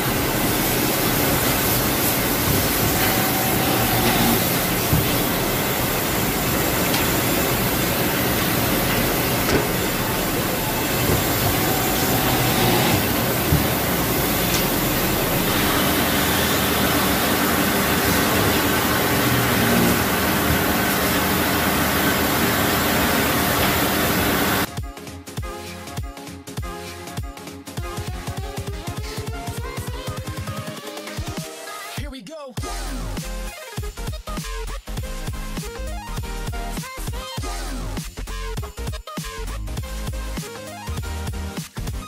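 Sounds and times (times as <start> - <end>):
boring machine whirring: 0.0 - 24.7
sharp machine knocks: 0.3 - 21.2.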